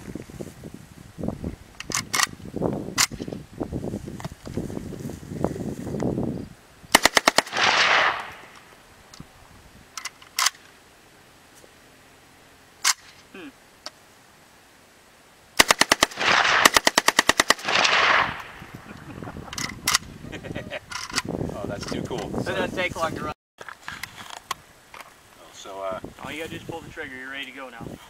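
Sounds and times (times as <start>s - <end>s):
rifle firing bursts: 6.9s - 8.5s, 15.6s - 18.6s.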